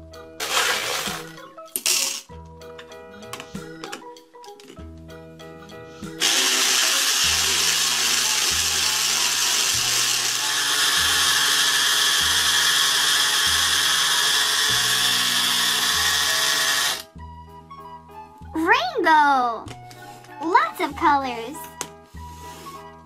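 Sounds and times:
toy blender whirring with gumballs: 0.4s - 1.4s, 6.2s - 17.1s
background music with bass: 17.1s - 18.8s.

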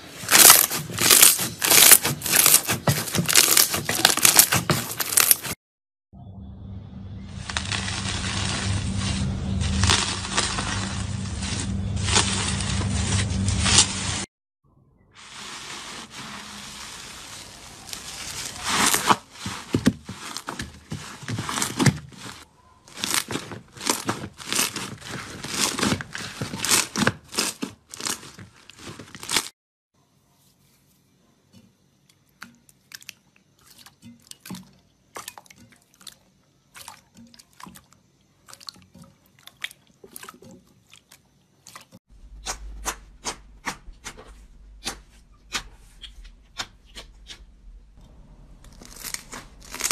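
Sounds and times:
slime crackling crunch: 0.1s - 5.6s, 7.4s - 14.2s, 16.0s - 29.5s, 48.5s - 49.9s.

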